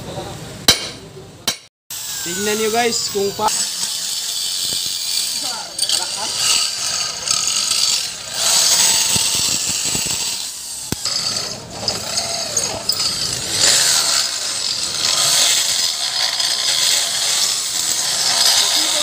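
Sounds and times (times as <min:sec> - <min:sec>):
electric drill boring into steel: 0:01.9 - 0:19.0
sharp click: 0:10.9 - 0:11.1.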